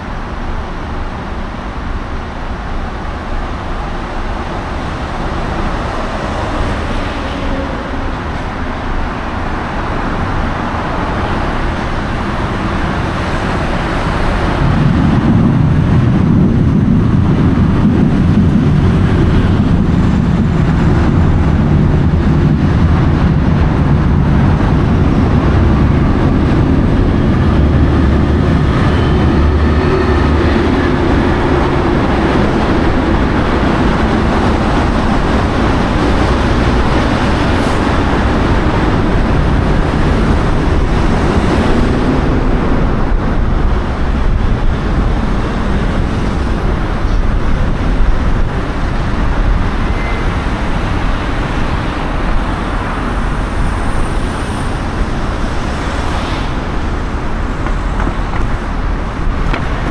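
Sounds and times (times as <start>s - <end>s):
car road noise: 0.0s - 59.9s.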